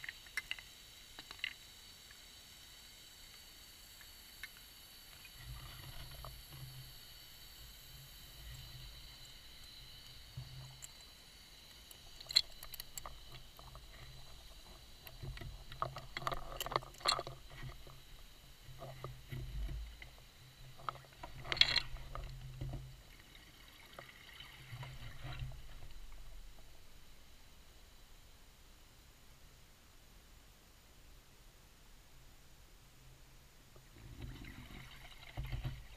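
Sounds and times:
faint high whine: 0:00.0 - 0:35.9
exhaled bubbles crackling: 0:33.9 - 0:35.9.

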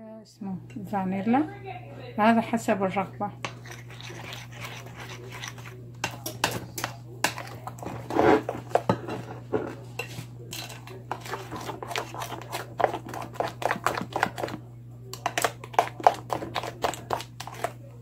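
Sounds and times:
spoon scraping a bowl: 0:03.4 - 0:17.8.

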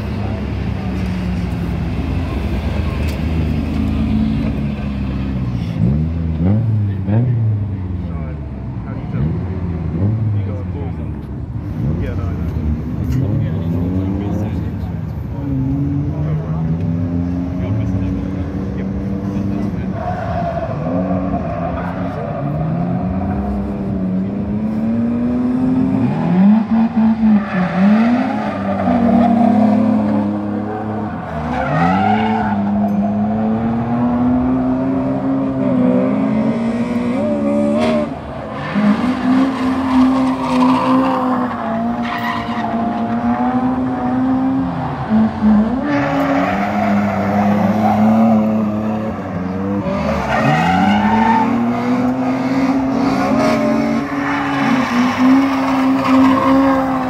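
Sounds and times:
tyres screeching: 0:37.8 - 0:57.0.

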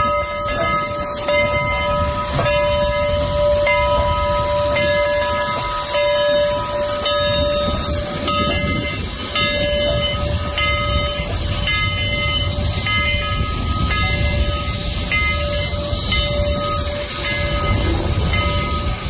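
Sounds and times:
locomotive bell ringing: 0:00.0 - 0:19.0
steam locomotive rumbling: 0:00.0 - 0:19.0.

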